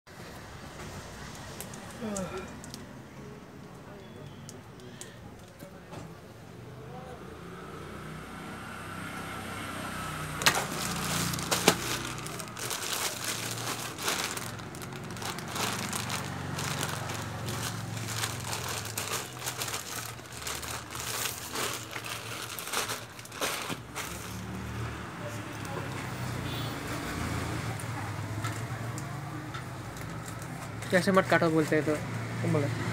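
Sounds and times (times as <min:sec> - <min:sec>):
plastic mailer crinkling: 0:10.4 - 0:24.4.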